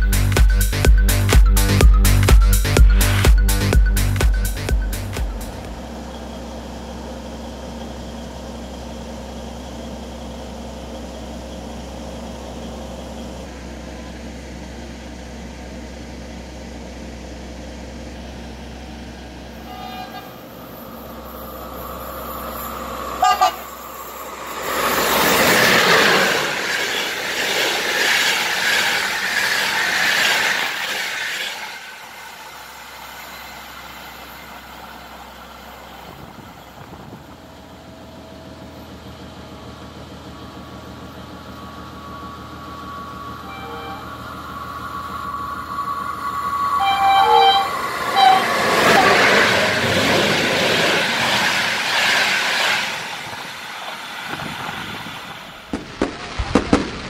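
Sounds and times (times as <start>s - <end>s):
passenger train rushing by: 0.0s - 57.0s
train horn toot: 19.5s - 20.7s, 23.2s - 23.7s, 42.8s - 49.5s
steady low hum: 36.0s - 48.8s.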